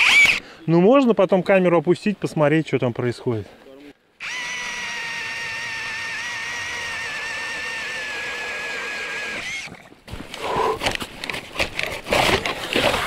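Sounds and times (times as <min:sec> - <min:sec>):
cordless drill motor whining: 0:00.0 - 0:00.4, 0:04.2 - 0:09.7
knocks and scrapes: 0:10.1 - 0:13.0.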